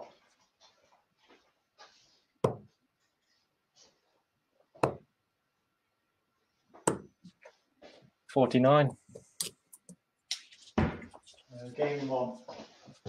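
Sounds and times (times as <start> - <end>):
darts thudding into dartboard: 2.4 - 2.7, 4.8 - 5.1, 6.8 - 7.1.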